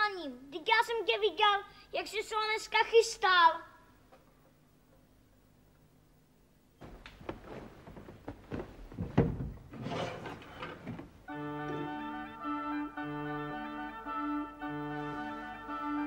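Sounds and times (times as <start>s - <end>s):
objects clattering and knocking: 6.8s - 11.2s
organ-like music: 11.2s - 16.0s.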